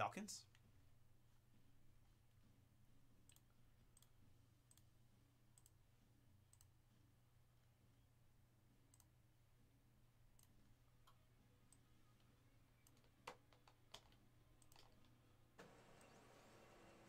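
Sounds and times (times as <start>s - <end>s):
low steady hum: 0.0s - 17.0s
computer mouse clicks: 3.2s - 4.9s, 5.5s - 5.8s, 6.5s - 6.8s, 8.9s - 9.2s, 10.3s - 15.2s.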